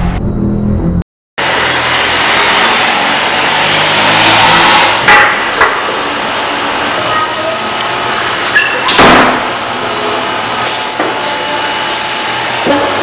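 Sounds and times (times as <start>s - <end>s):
loud rushing noise: 0.0s - 7.0s.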